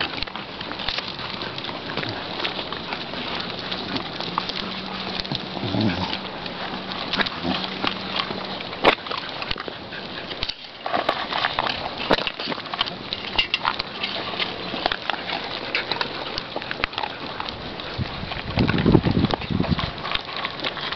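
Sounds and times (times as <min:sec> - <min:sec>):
crackle of small clicks: 0:00.0 - 0:20.9
dogs eating: 0:00.0 - 0:20.9
paws scuffing on gritty ground: 0:00.0 - 0:20.9
dog whining: 0:04.6 - 0:07.9.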